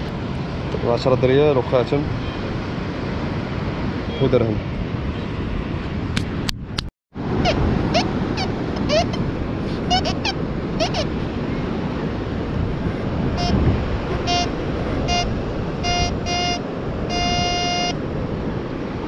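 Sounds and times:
metal detector beeping: 0:13.4 - 0:13.6, 0:14.2 - 0:18.0.

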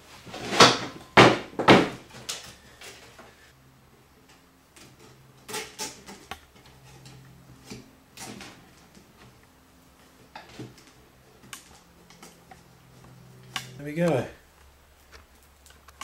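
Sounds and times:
rustles and clicks of twisted wire: 0:04.2 - 0:16.0.

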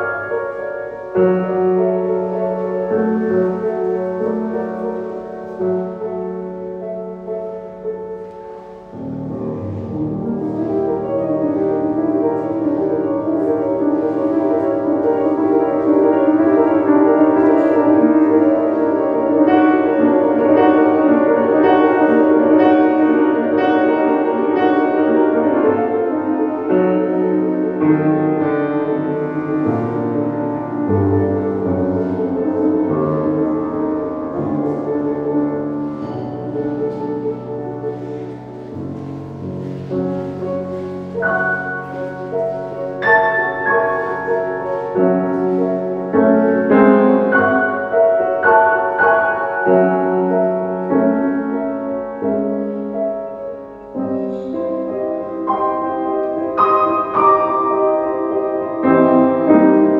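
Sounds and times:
grand piano playing: 0:00.0 - 0:59.9.

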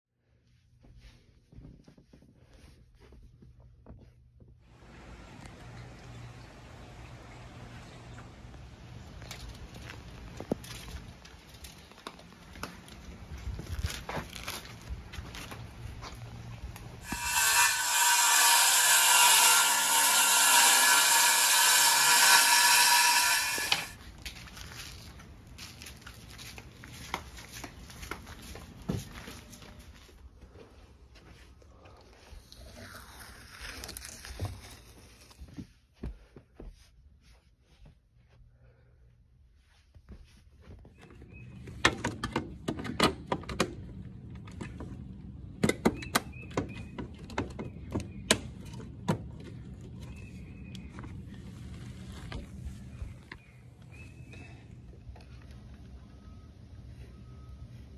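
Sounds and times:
circular saw whining: 0:17.0 - 0:24.0.

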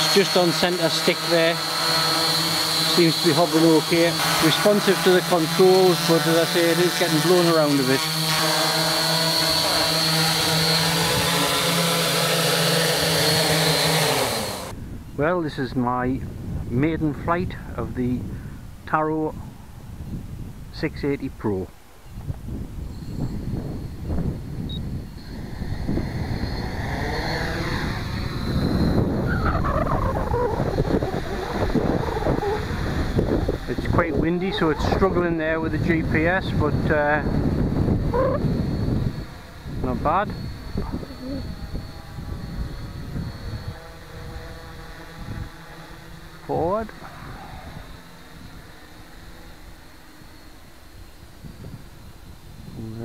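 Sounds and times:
drone motors buzzing hum: 0:00.0 - 0:21.1, 0:22.0 - 0:53.0
thin high whine: 0:00.0 - 0:53.0
wind buffeting the microphone: 0:14.7 - 0:48.8, 0:51.0 - 0:53.0.

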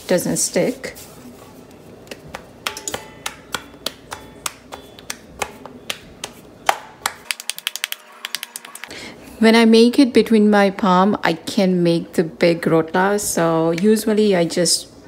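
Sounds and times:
dough slapped between palms: 0:02.3 - 0:08.0.

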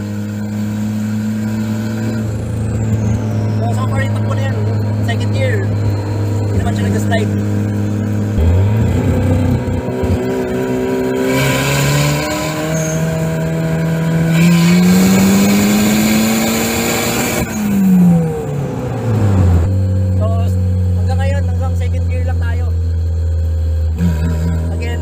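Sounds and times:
car engine accelerating: 0:00.0 - 0:25.0.

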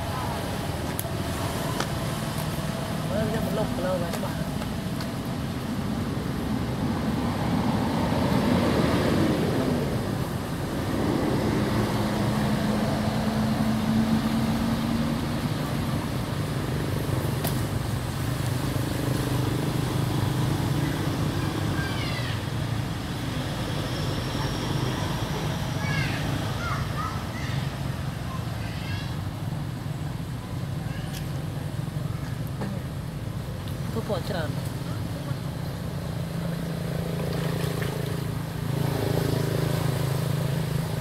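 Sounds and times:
traffic engine drone: 0:00.0 - 0:41.0.

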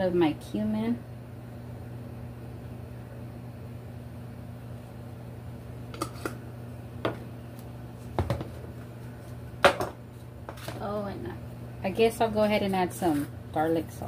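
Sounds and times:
low appliance hum: 0:00.0 - 0:14.0.

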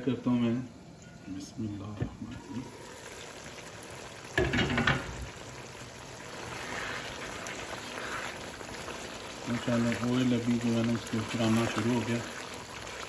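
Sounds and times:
curry bubbling and sizzling: 0:00.0 - 0:13.0
wooden spoon stirring: 0:06.2 - 0:13.0.

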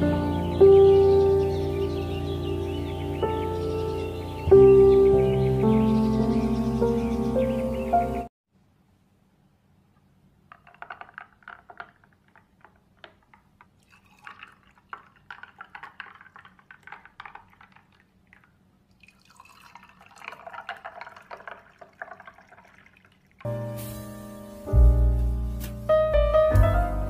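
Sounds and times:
juice pouring over ice: 0:10.5 - 0:23.9.

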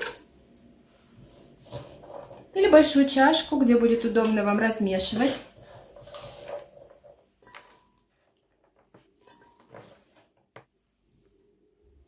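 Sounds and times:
knife scraping cutting board: 0:01.2 - 0:02.5, 0:05.0 - 0:08.0.

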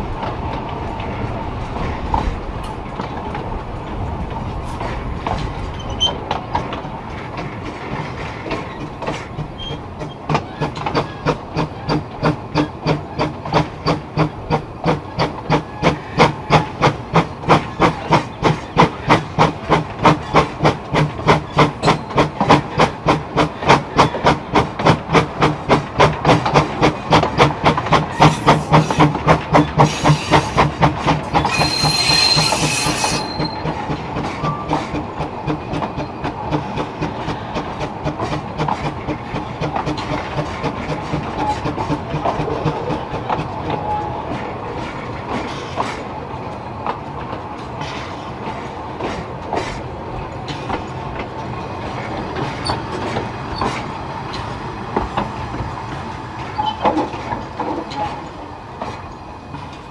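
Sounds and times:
steam locomotive chuffing: 0:04.8 - 0:59.9
steam hissing: 0:29.8 - 0:34.8.

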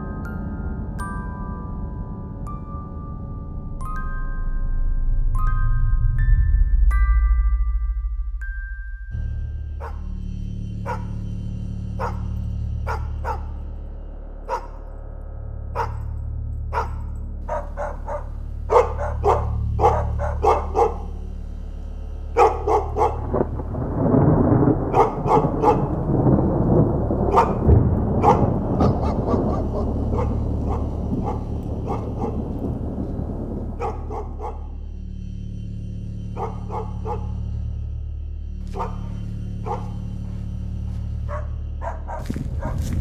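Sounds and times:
steady low drone: 0:00.0 - 0:43.0
dense low rumbling: 0:04.6 - 0:43.0
dogs barking: 0:09.8 - 0:10.1, 0:10.8 - 0:11.2, 0:12.0 - 0:13.6, 0:14.5 - 0:14.9, 0:15.8 - 0:21.3, 0:22.3 - 0:23.3, 0:24.8 - 0:26.0, 0:27.3 - 0:32.9, 0:33.6 - 0:34.8, 0:36.4 - 0:37.4, 0:38.7 - 0:40.2, 0:41.3 - 0:43.0.

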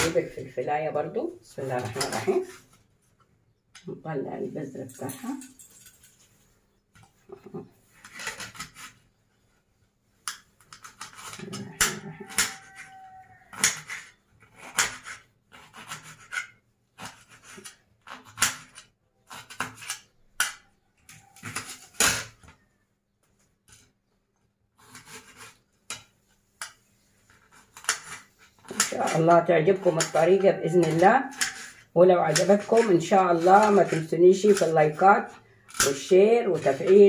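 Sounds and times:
knife slicing pepper: 0:10.8 - 0:20.6.

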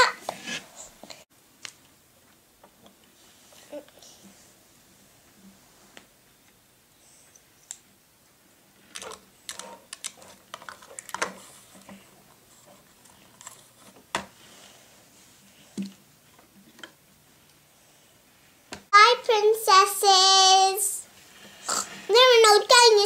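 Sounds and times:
plastic toys clicking on wood: 0:08.9 - 0:11.4.

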